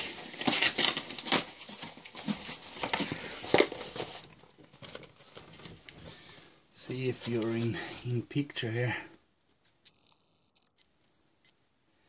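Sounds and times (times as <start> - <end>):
cardboard box rustling: 0.0 - 6.3.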